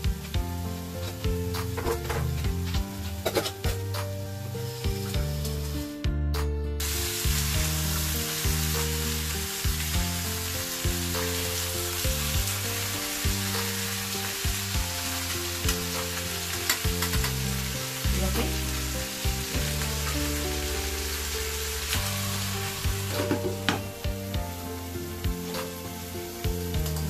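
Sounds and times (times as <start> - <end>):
chicken sizzling in hot oil: 0.0 - 6.0, 6.8 - 27.0
utensils knocking against pan: 23.1 - 23.9.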